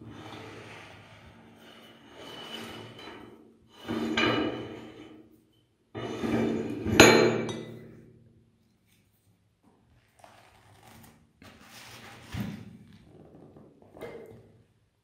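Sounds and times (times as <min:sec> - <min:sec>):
metal grating and scraping: 0:00.2 - 0:05.2, 0:06.0 - 0:07.4.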